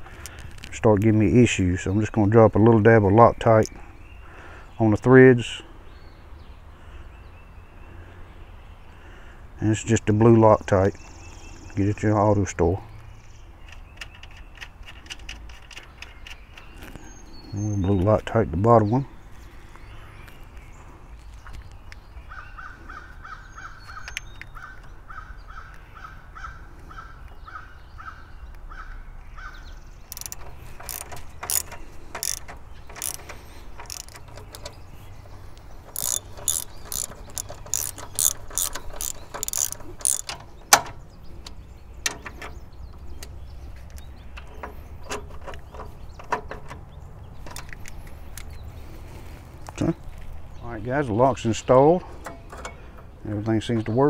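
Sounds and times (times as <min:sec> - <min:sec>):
ratchet wrench clicking: 0:30.1 - 0:40.4.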